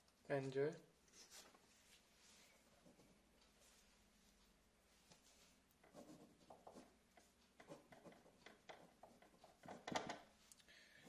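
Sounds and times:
pen scratching on paper: 0:05.8 - 0:09.8.

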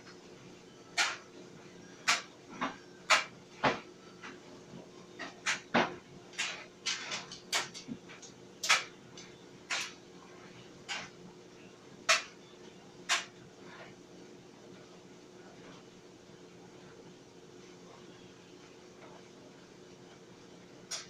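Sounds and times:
clothes dryer motor hum: 0:00.0 - 0:21.0.

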